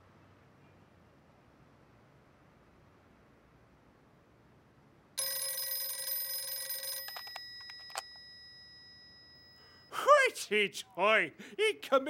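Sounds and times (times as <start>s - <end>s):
handset clicks and clatters: 5.2s - 8.4s
telephone bell ringing: 5.2s - 10.0s.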